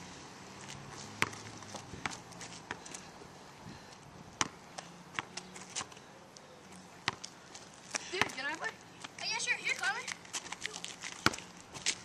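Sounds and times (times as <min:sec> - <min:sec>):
basketball bouncing on asphalt: 0:00.6 - 0:03.1, 0:04.2 - 0:06.0, 0:07.0 - 0:12.0.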